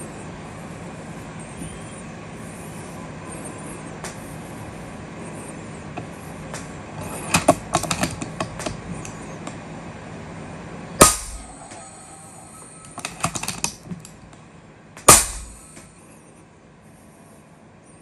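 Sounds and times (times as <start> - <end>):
air rifle shot: 11.0 - 13.5, 15.0 - 15.9.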